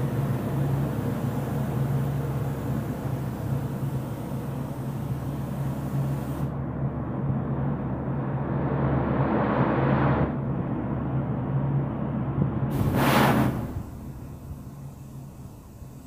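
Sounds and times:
low machine hum: 0.0 - 16.0
paint spray gun hissing: 12.7 - 16.0.

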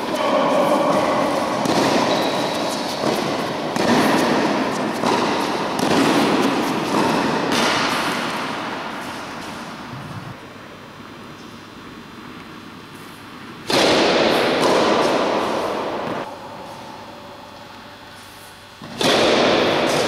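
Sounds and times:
tennis ball pops with echo: 0.9 - 8.1.

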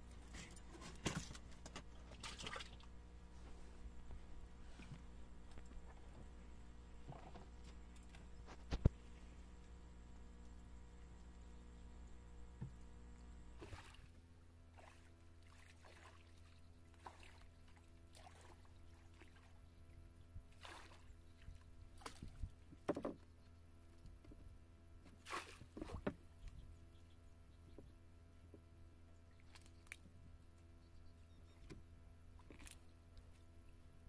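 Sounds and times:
water splashing and sloshing: 0.0 - 6.4, 13.5 - 23.3, 24.3 - 26.6, 29.3 - 30.4, 31.6 - 33.9
steady low hum: 0.0 - 34.0.

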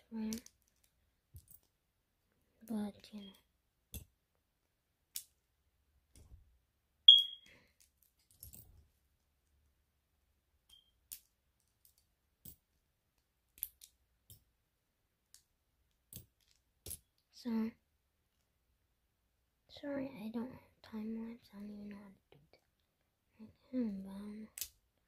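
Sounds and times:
high-pitched ping: 7.1 - 7.4.

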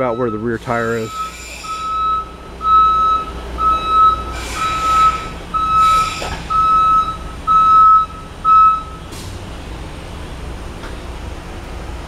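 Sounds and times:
electronic beeping tone: 0.0 - 9.0.

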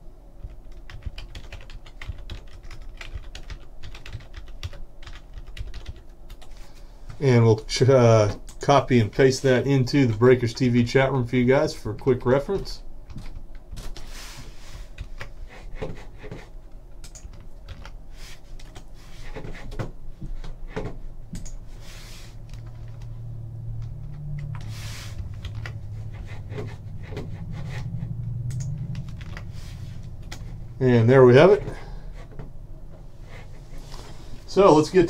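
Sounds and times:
low steady hum: 0.0 - 35.0
keyboard and mouse clicks: 17.0 - 18.0, 20.7 - 21.6, 23.8 - 25.8, 28.4 - 29.5, 30.1 - 30.5.

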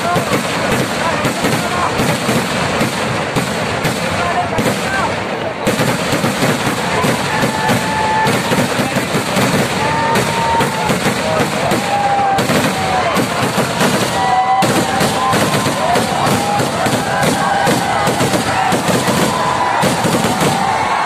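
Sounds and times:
fireworks bangs and crackle: 0.0 - 21.0
high firework whistles: 5.8 - 21.0.

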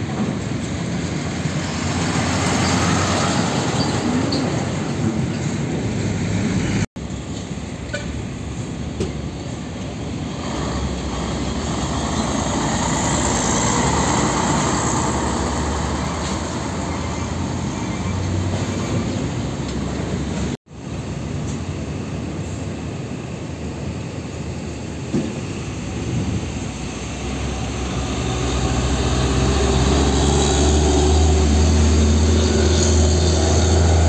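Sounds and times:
diesel trucks passing: 0.0 - 34.0.

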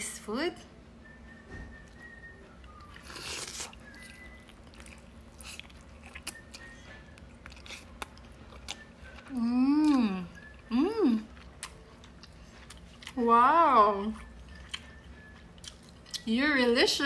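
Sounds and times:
biting and chewing: 2.0 - 10.5, 11.3 - 13.2.

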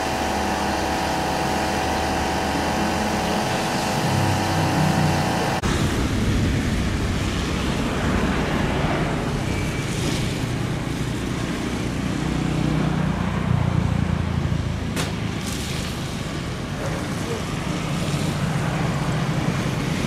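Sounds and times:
distant jet rumble: 3.2 - 11.3.

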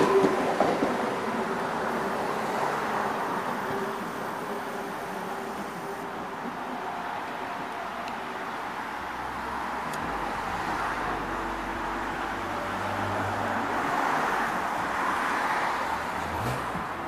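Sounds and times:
train wheels rumbling: 0.0 - 8.7.

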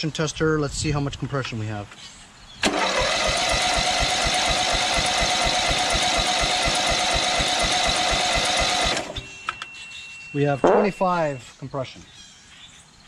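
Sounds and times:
electric starter cranking engine: 2.6 - 9.4.

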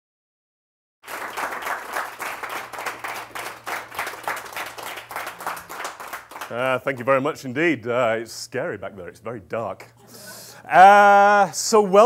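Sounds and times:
audience applauding: 1.0 - 7.2.

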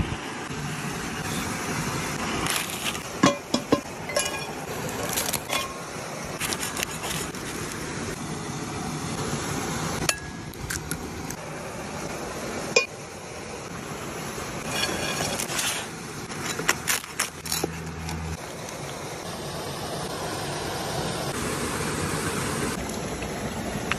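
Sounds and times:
waterfall and creek rushing: 0.0 - 23.9.

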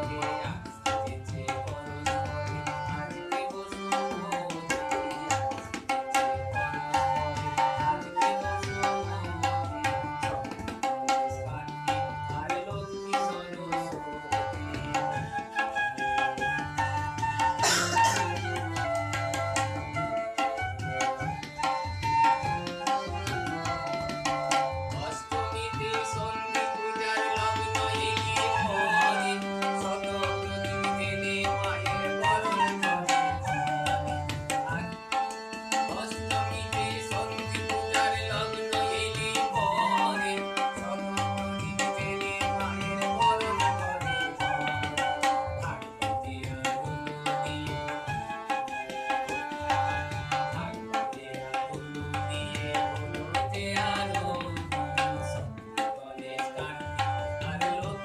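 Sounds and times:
harmonium chords: 0.0 - 55.8, 56.6 - 58.0
tabla rhythm: 0.0 - 58.0
bamboo flute melody: 6.4 - 7.2, 15.2 - 24.9, 28.6 - 29.4, 32.2 - 34.7, 43.1 - 45.5, 48.1 - 50.2.

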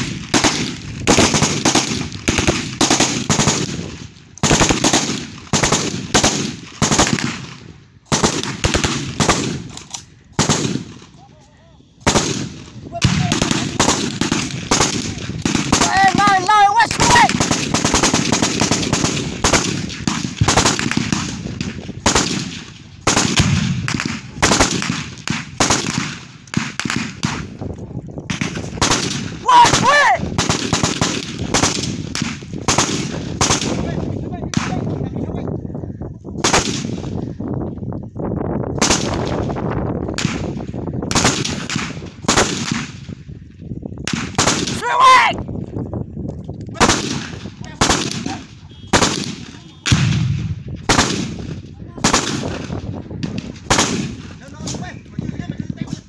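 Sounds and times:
automatic gunfire bursts: 0.0 - 3.8, 4.4 - 7.4, 8.1 - 9.6, 10.4 - 10.9, 12.0 - 12.5, 13.1 - 21.4, 22.0 - 27.4, 28.3 - 33.8, 41.1 - 42.8, 46.8 - 50.2, 52.0 - 52.7.

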